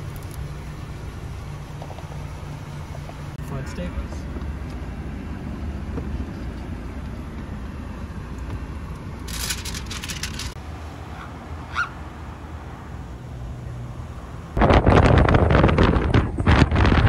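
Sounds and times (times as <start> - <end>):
low rumble inside car: 0.0 - 11.9
crackling: 9.0 - 10.6.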